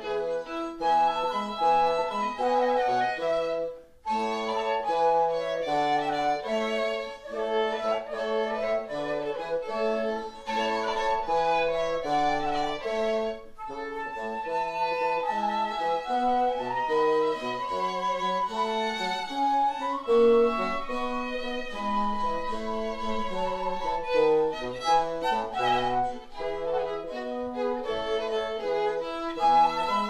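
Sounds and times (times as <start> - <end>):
bassoon: 0.0 - 30.0
flute: 0.0 - 30.0
violin: 0.0 - 30.0.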